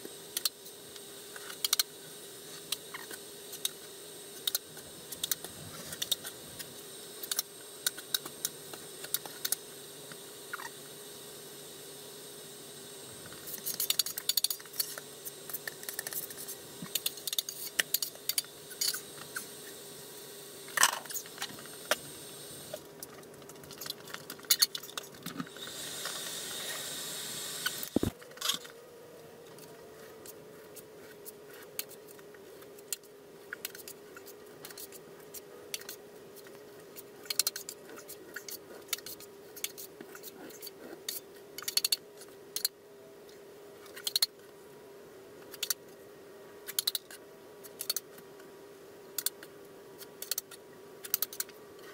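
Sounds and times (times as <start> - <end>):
steady hum: 0.0 - 51.9
hand tools clicking and scraping: 13.3 - 19.5, 29.5 - 42.7.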